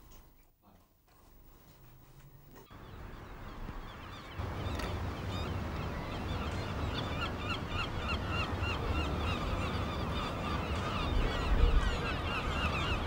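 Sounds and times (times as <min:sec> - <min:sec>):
flock of birds calling: 0:02.7 - 0:13.0.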